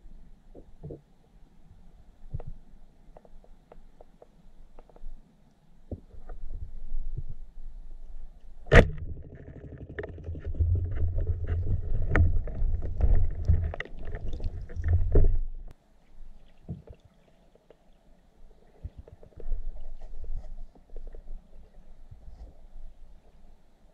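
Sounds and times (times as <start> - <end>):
speargun firing underwater: 8.7 - 10.2
low underwater rumbling: 8.7 - 15.7.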